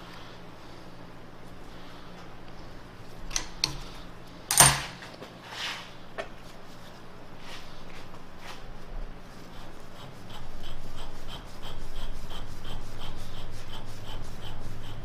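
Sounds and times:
metal threads scraping: 3.3 - 5.8.

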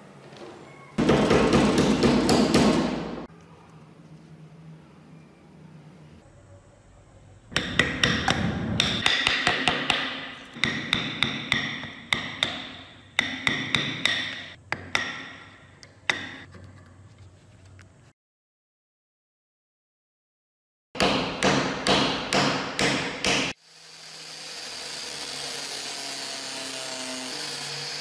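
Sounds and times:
hammer striking steel punch: 7.5 - 16.4, 21.0 - 23.6.

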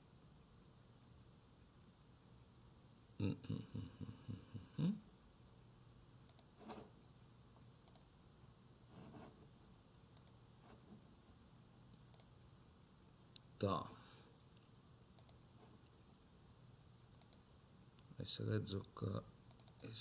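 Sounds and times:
keyboard and mouse clicks: 6.3 - 6.8, 7.8 - 8.1, 10.0 - 10.4, 12.0 - 12.3, 15.2 - 15.4, 17.2 - 17.4, 19.5 - 19.9.

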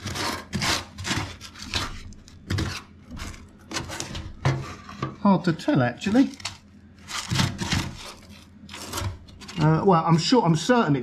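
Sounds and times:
gloved hand scraping metal panel: 0.0 - 5.2, 6.4 - 9.7.

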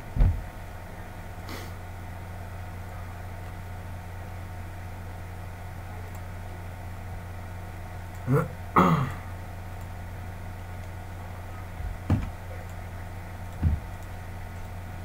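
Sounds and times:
dull thump: 0.2 - 0.5, 11.8 - 12.4, 13.6 - 13.9
person clearing throat: 8.2 - 9.3.

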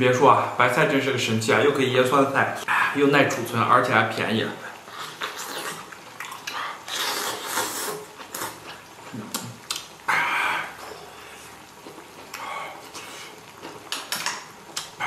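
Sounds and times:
person slurping food: 5.0 - 8.7.

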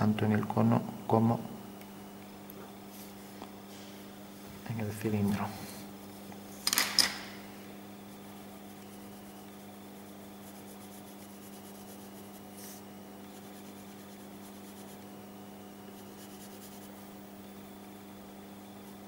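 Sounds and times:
low electrical hum: 0.0 - 19.0
pencil scratching on paper: 8.1 - 15.2, 15.8 - 17.1.

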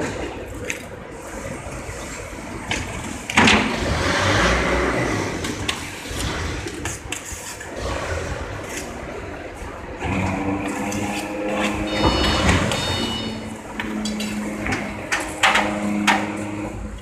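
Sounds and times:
loud rush of noise: 0.0 - 17.0
machinery noise: 3.7 - 17.0.

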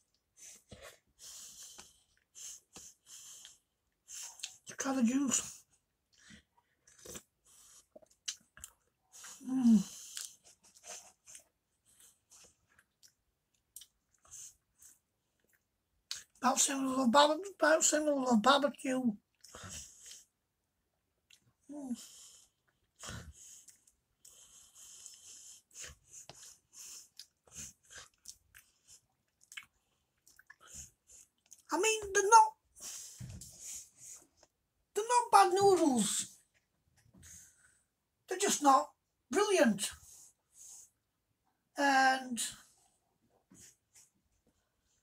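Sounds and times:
quiet chewing: 0.0 - 4.8, 5.5 - 16.4, 19.2 - 20.4, 21.2 - 31.7.

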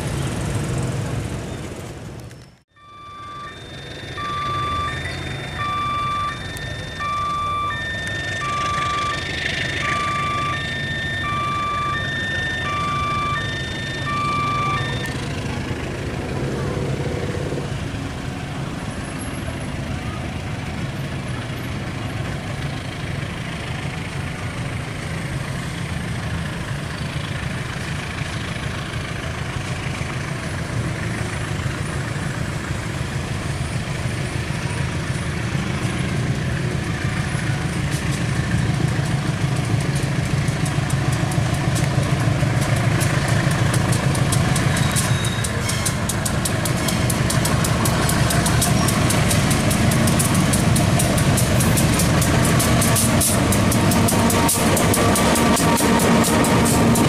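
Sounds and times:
locomotive engine droning: 0.0 - 57.0
train wheels clicking over rail joints: 34.9 - 57.0.

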